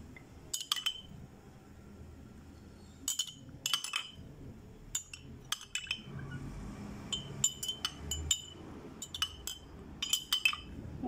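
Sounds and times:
spoon clinking against glass: 0.5s - 1.2s, 3.0s - 4.3s, 4.9s - 6.4s, 7.0s - 10.8s.

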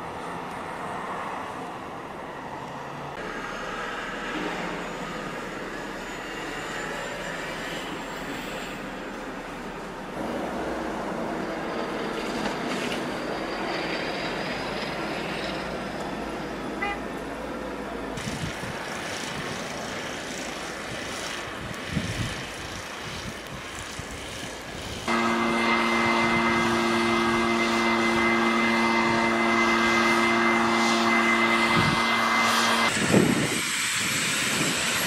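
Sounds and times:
snowstorm rushing hiss: 0.0s - 35.0s
gusty low rumbling: 24.8s - 35.0s.

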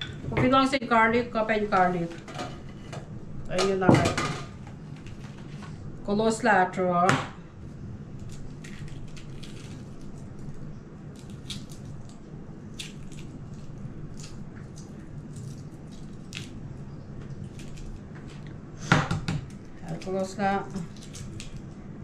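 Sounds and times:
steady low hum: 0.0s - 22.0s
eggshells cracking and peeling: 8.2s - 18.5s, 19.4s - 21.8s.

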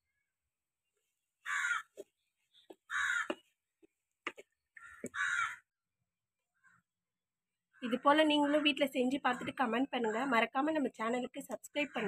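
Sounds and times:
crow cawing: 1.4s - 1.9s, 2.9s - 3.4s, 4.8s - 5.7s.

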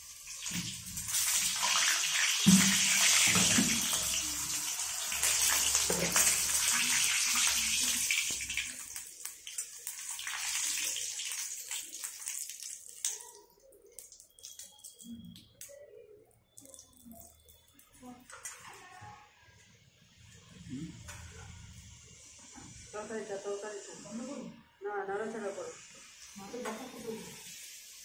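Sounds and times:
food sizzling in hot oil: 0.0s - 15.6s, 25.8s - 28.0s.

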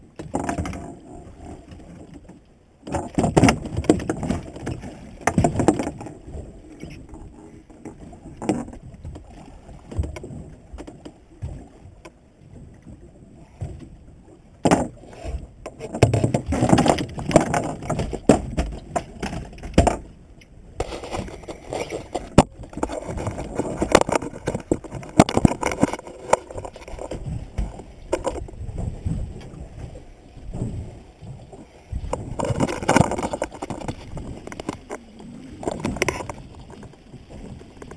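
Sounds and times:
low rumble of water and wind: 0.0s - 37.9s
knocks and thumps of gear: 2.9s - 6.1s, 15.8s - 20.1s, 20.8s - 28.5s, 32.1s - 35.0s.

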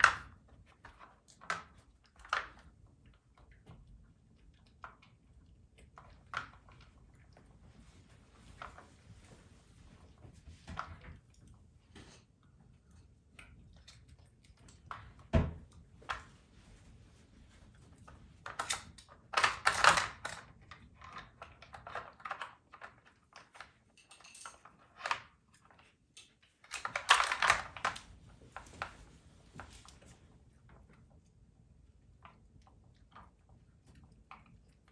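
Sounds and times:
plastic pieces clicking and clattering: 18.4s - 25.3s, 26.2s - 28.0s.

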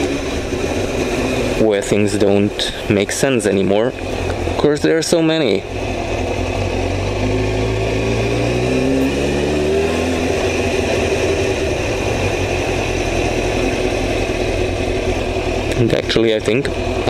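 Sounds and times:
motorcycle engine accelerating: 0.0s - 17.0s
wind and road noise: 0.0s - 17.0s.

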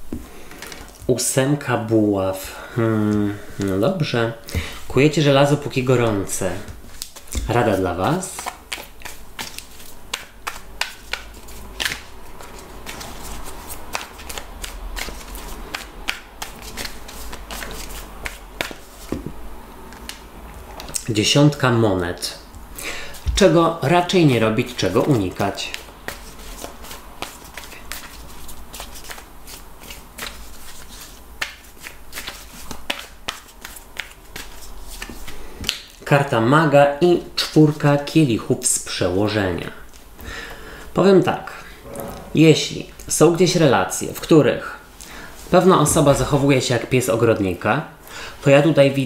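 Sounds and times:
cards being shuffled: 6.1s - 19.3s, 24.7s - 35.9s.

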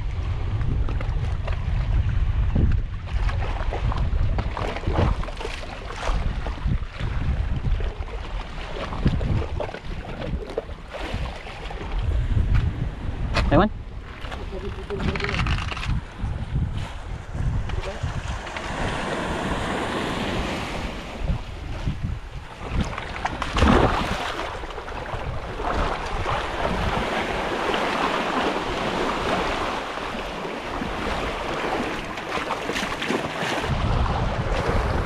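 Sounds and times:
wind buffeting microphone: 0.0s - 35.0s
sea waves washing: 13.9s - 35.0s.

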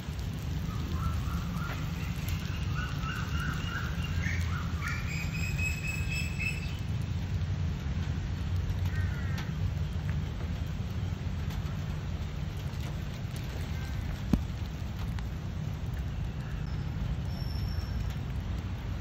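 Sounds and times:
bird chirping and whistling: 1.0s - 6.8s.

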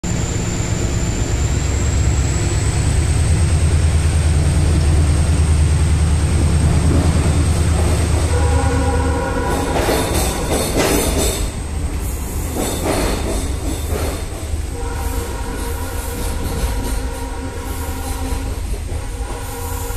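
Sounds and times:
train running gear rumble: 0.1s - 19.9s.

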